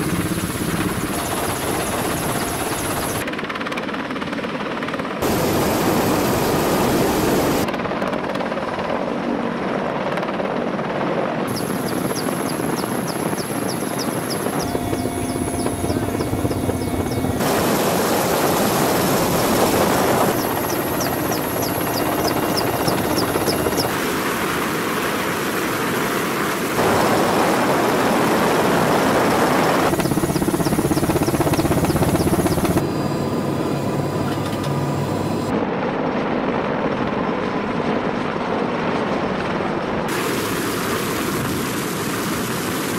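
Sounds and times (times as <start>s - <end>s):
helicopter rotor and engine noise: 0.0s - 42.9s
thin high whine: 11.5s - 24.0s.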